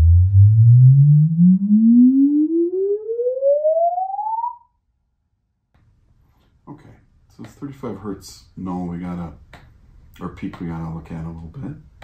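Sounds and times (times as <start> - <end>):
rising sine sweep tone: 0.0 - 4.8.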